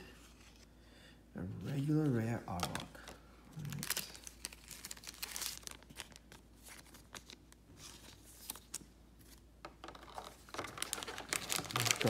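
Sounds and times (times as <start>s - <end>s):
foil wrappers rustling: 1.7s - 8.8s, 10.1s - 12.0s.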